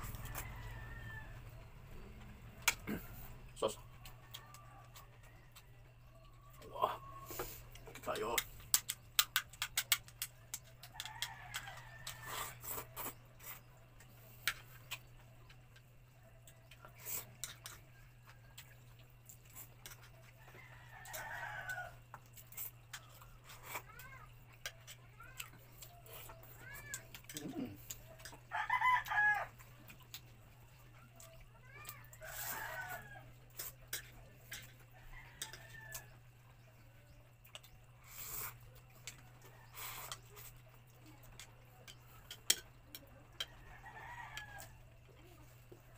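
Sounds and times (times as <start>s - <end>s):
rooster crowing: 0.0s - 2.0s, 10.8s - 12.7s, 20.4s - 22.0s, 28.5s - 29.6s, 31.8s - 33.6s, 34.9s - 36.3s, 43.4s - 45.0s.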